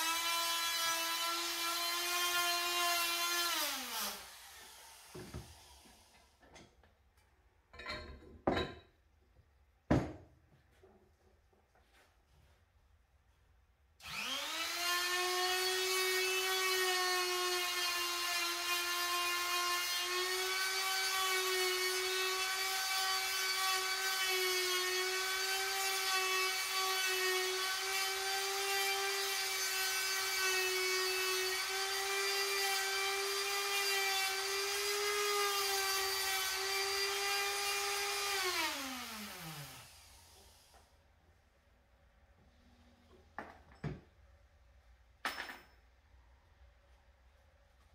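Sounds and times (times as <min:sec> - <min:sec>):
die grinder whining: 0:14.0 - 0:40.4.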